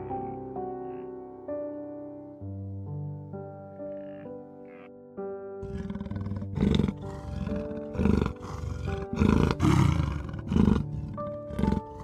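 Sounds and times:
background music: 0.0s - 12.0s
leopard roaring: 5.6s - 12.0s.

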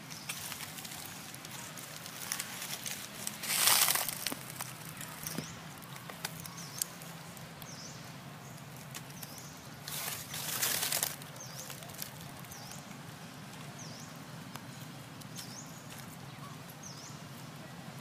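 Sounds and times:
dry leaves rustling: 0.0s - 17.8s
small clicks and crackles: 0.1s - 13.8s.

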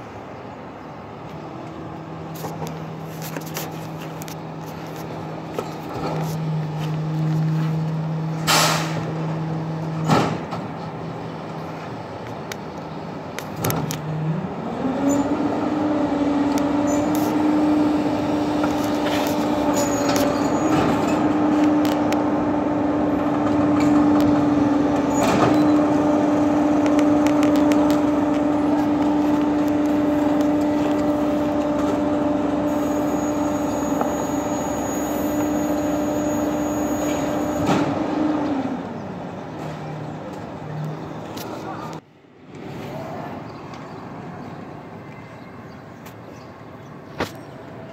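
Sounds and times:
hydraulic packer working: 13.5s - 40.4s
garbage truck engine running: 14.2s - 41.2s.

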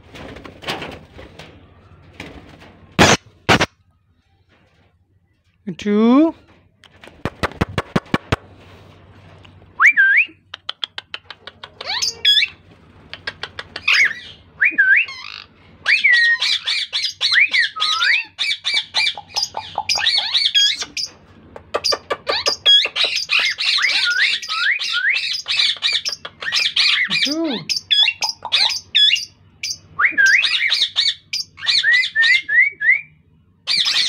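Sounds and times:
parakeet squeaky calls and clicking: 10.5s - 14.4s, 16.4s - 27.1s, 27.7s - 29.8s.

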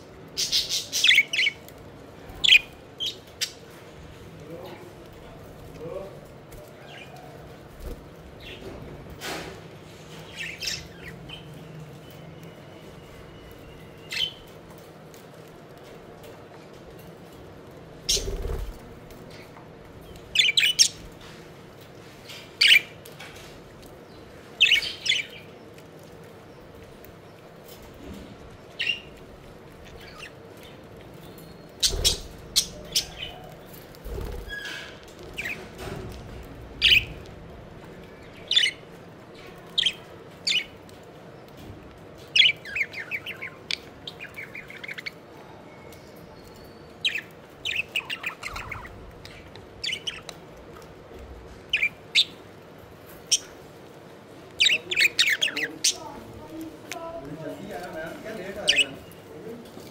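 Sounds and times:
budgerigars chirping: 31.8s - 33.5s, 47.0s - 50.3s, 54.6s - 56.2s, 57.8s - 59.0s.

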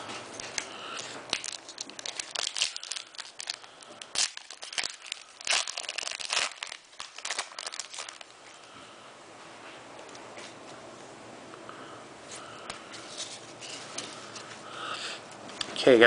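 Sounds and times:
foil wrapper tearing and crinkling: 1.3s - 8.3s.

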